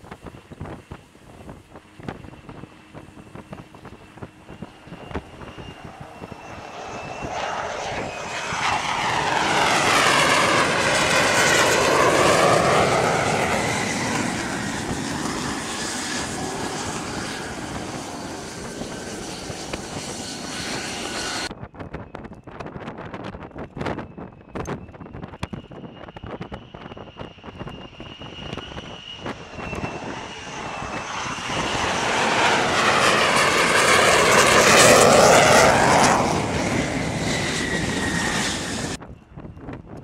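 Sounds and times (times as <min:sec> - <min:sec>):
jet engine whine: 0:00.0 - 0:40.0
jet passing with whoosh: 0:04.1 - 0:21.5, 0:28.0 - 0:39.0.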